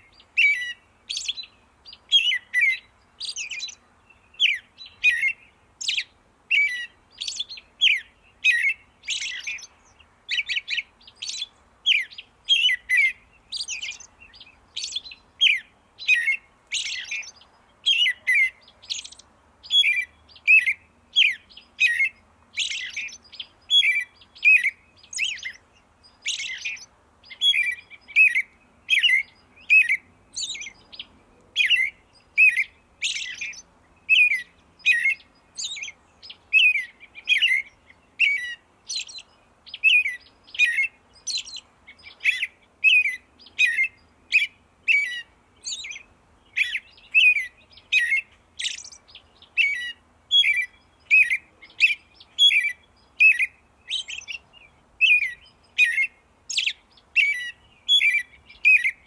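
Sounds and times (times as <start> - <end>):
small songbird chirping: 0.0 - 59.0.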